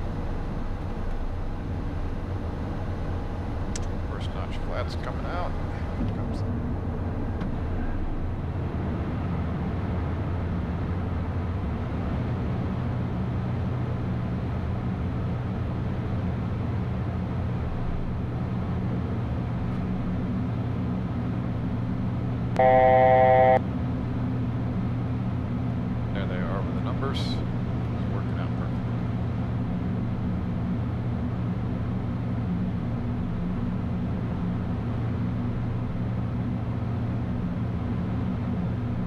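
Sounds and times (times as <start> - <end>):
jet engine cockpit drone: 22.5 - 23.8
electronic alert tone: 22.6 - 23.6.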